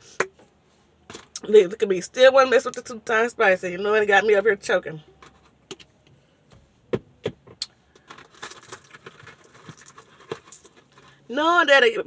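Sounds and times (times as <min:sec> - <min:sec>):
takeout box crinkling: 0:07.9 - 0:11.2.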